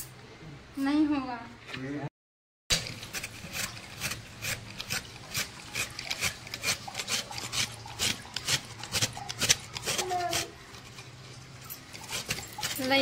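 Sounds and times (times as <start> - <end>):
metal scraper rasping coconut: 2.7 - 13.0.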